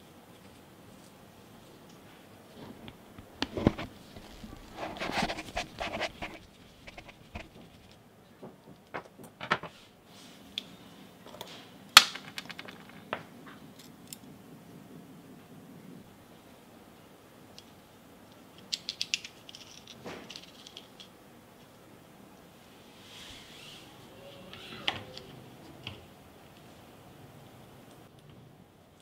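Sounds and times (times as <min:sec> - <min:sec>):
scraping and rustling: 0:00.4 - 0:10.4.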